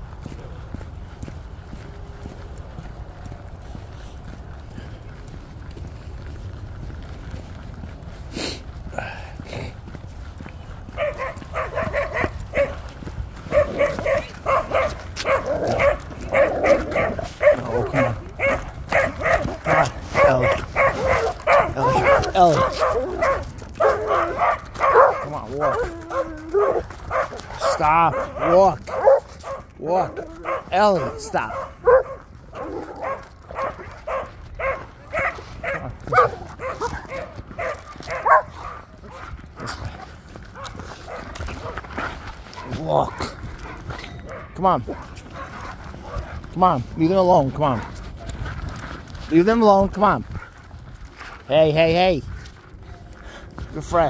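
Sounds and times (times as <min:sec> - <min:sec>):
dog barking rapidly: 0:10.9 - 0:39.3, 0:42.6 - 0:46.3.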